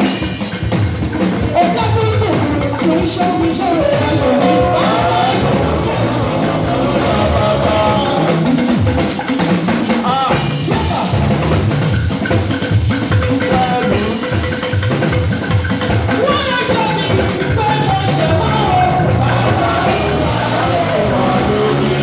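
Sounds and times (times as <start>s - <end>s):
drum kit beat: 0.0s - 22.0s
keyboard: 0.0s - 22.0s
person singing: 1.4s - 8.6s, 13.3s - 14.5s, 16.1s - 22.0s.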